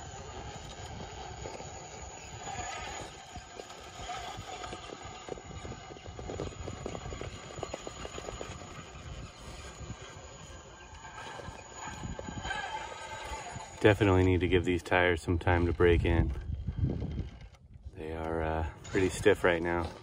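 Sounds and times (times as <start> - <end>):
rc car clattering on rock: 0.0 - 10.3, 11.0 - 20.0.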